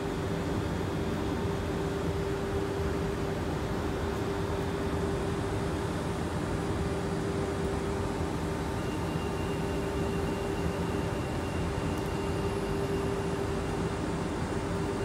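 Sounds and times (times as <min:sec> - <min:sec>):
faint high whine: 0:06.6 - 0:15.0.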